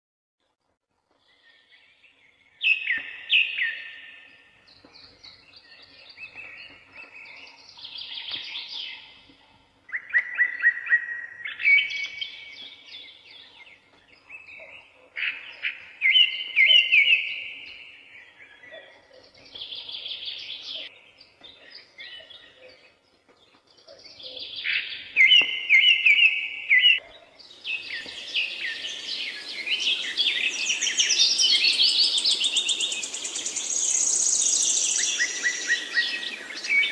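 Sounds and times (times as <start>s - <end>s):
songbird chirping and trilling: 1.1s - 36.9s
background hiss: 27.4s - 36.9s.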